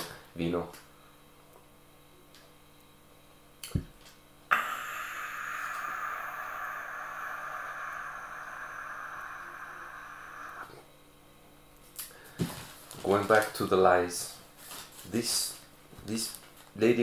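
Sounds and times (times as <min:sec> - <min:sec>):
man's long raspy cry: 0:04.5 - 0:10.7.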